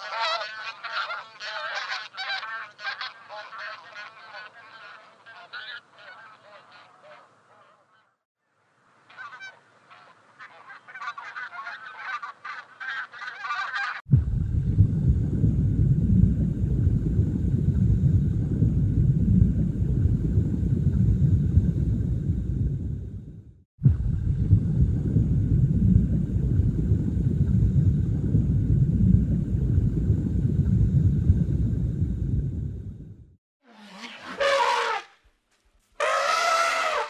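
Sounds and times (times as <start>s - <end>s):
goose honking: 0.0s - 8.1s, 9.1s - 14.0s, 34.0s - 35.1s, 36.0s - 37.0s
steady low rumble: 14.1s - 33.4s.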